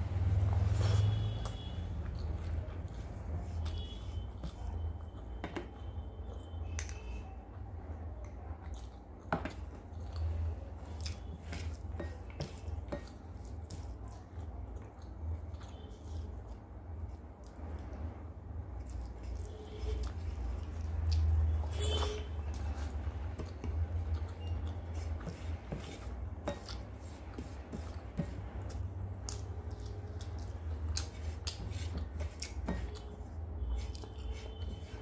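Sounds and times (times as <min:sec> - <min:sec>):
fingers squishing food on plate: 0:18.8 - 0:35.0.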